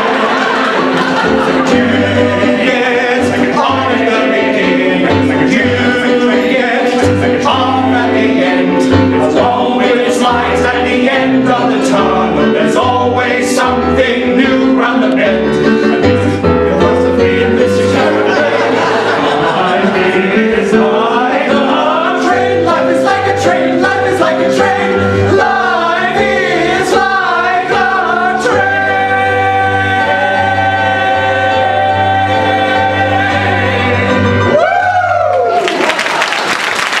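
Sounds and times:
audience applause: 0.0 - 1.7, 18.3 - 20.1, 35.0 - 37.0
men singing together: 0.0 - 34.6
keyboard accompaniment: 0.0 - 35.6.

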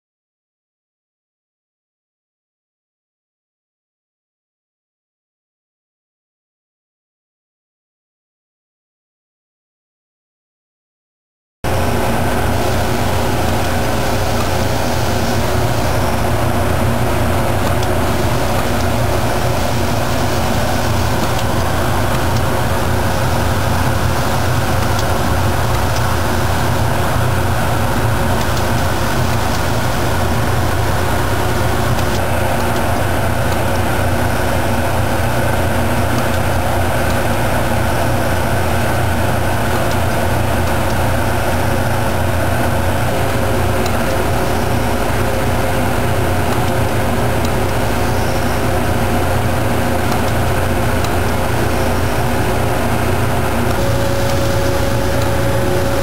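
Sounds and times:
surface grinder droning: 11.7 - 56.0.

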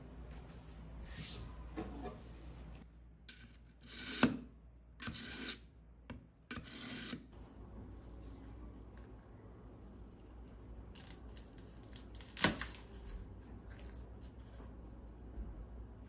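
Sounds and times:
knife scraping through sharpener: 3.3 - 4.4, 5.0 - 5.7, 6.5 - 7.3.

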